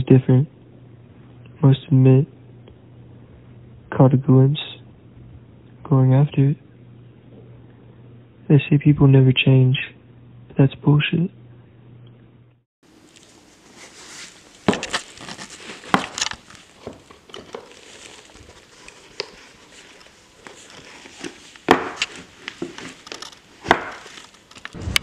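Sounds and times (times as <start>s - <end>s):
leather shoes rustling and crinkling: 12.9s - 24.8s.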